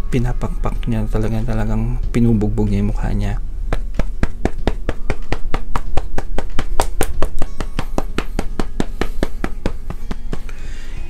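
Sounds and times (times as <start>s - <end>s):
powder puff patting face: 3.7s - 10.6s.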